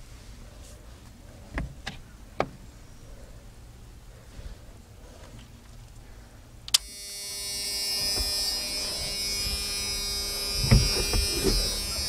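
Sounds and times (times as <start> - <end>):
electric fan motor whining: 6.7 - 12.0.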